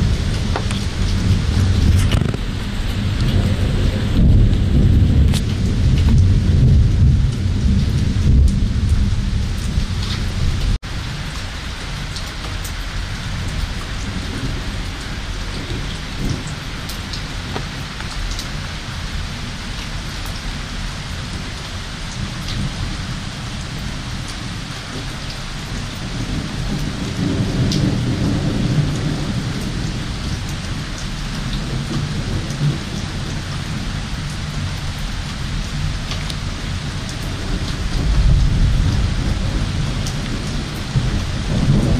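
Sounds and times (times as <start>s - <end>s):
rolling thunder: 0.0s - 21.5s, 25.7s - 41.9s
heavy rain: 0.0s - 41.9s.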